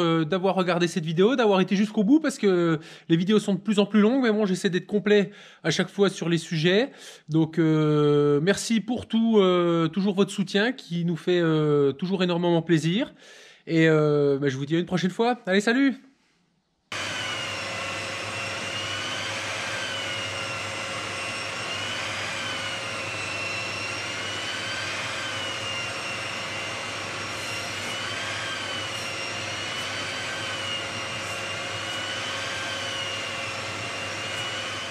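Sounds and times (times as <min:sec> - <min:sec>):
dust extractor hum: 0:16.9 - 0:34.9
power tool motor whine: 0:16.9 - 0:34.9.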